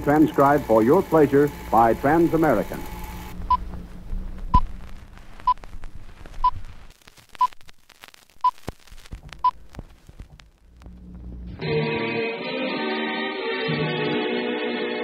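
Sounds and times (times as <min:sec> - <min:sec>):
film crackle and pops: 0:00.0 - 0:11.6
low hum: 0:01.0 - 0:06.9.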